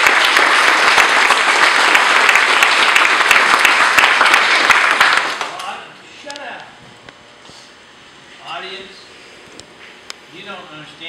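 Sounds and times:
audience applause: 0.0s - 5.6s.

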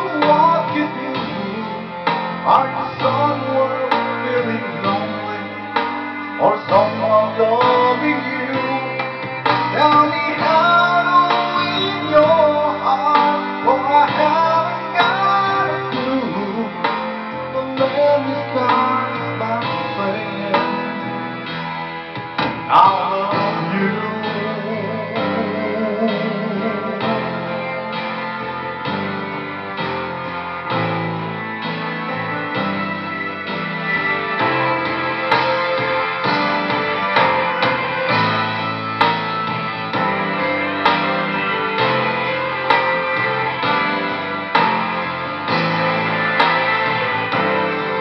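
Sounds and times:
man singing into a microphone: 0.0s - 21.5s, 22.5s - 28.2s
instrumental accompaniment: 0.0s - 48.0s.

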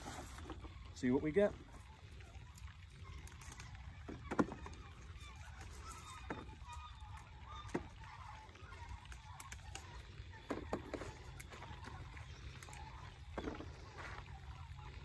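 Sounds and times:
low steady rumble: 0.0s - 15.0s
pepper stems snapping: 9.1s - 9.9s.

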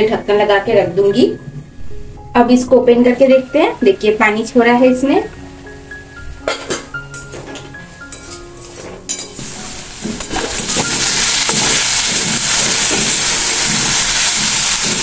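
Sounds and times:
leaves sizzling in oil: 8.6s - 15.0s
stirring strokes: 9.3s - 15.0s.

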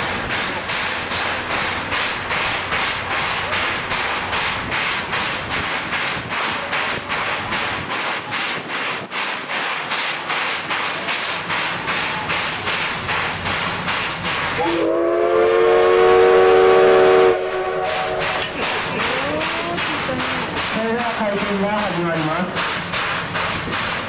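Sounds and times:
steam locomotive hissing: 0.0s - 24.0s
locomotive whistle blast: 14.6s - 18.6s.

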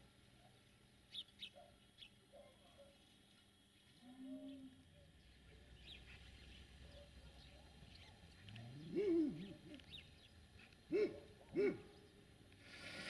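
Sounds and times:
distant animal calls: 4.0s - 13.0s.

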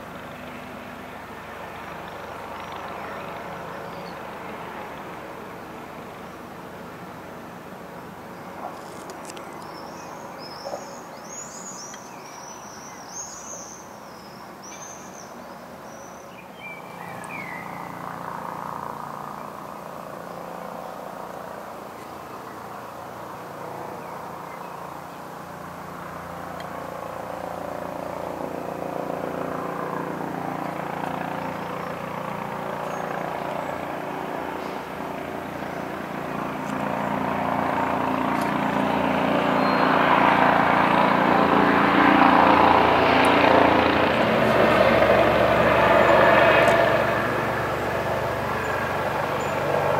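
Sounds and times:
helicopter flying overhead: 0.0s - 49.9s
songbird singing: 2.5s - 4.4s, 8.3s - 18.2s, 30.6s - 38.6s, 39.4s - 40.0s, 48.3s - 49.7s.

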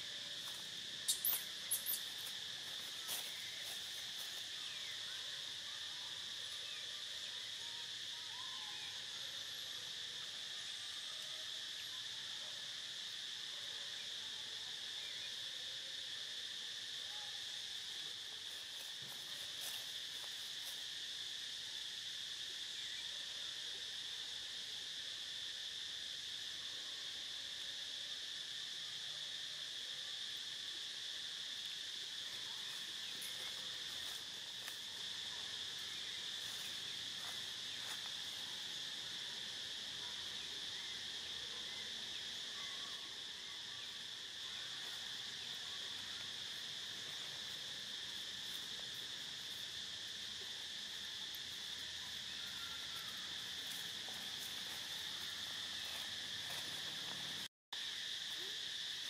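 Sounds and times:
insect chorus drone: 0.0s - 59.0s.

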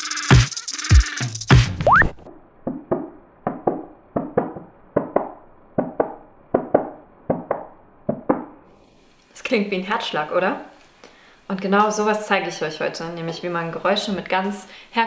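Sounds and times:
electronic music with heavy beats: 0.0s - 2.2s
rising whistle-like glide: 1.8s - 2.2s.

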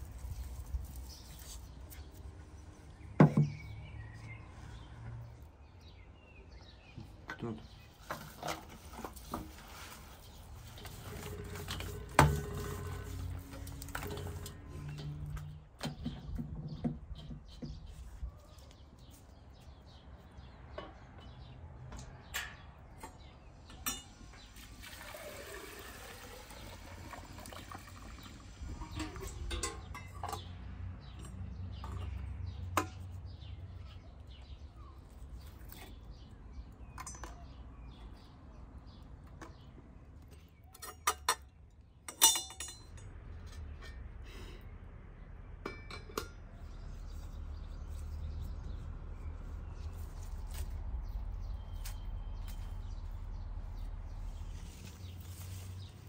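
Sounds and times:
water pouring into a vessel: 24.5s - 28.5s
knocks and clinks of handling: 42.1s - 43.1s.

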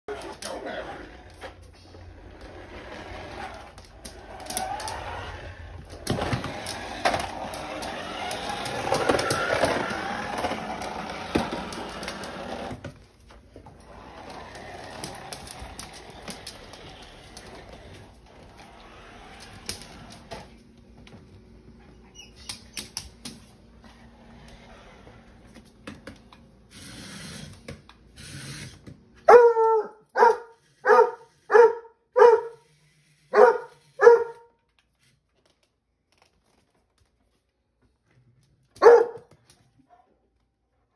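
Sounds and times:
puppy barking: 29.2s - 32.6s, 33.3s - 34.5s, 38.8s - 39.3s.

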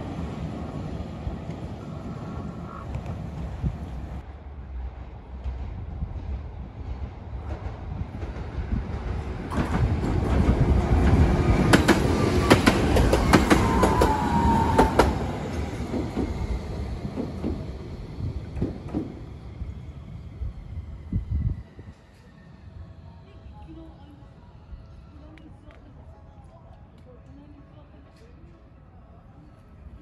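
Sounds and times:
tram passing rumble: 0.0s - 30.0s
wheels clacking over rail joints: 7.4s - 19.3s.

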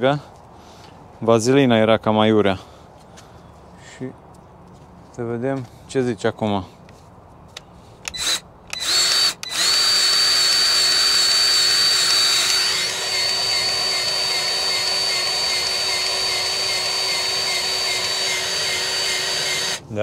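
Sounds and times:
grease gun motor whine: 8.1s - 19.8s.

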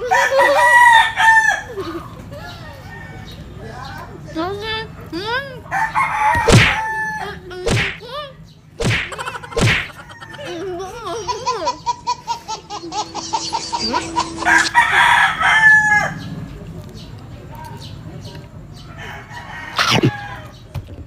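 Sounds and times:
fowl crowing: 5.7s - 7.4s, 12.4s - 16.2s.

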